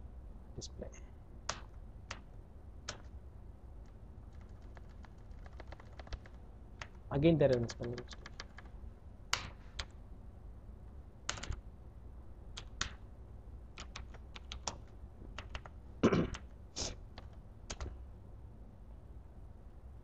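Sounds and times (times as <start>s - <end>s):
computer keyboard keystrokes: 1.5s - 3.1s, 3.8s - 10.0s, 11.2s - 11.6s, 12.5s - 13.0s, 13.8s - 16.5s, 17.1s - 18.0s.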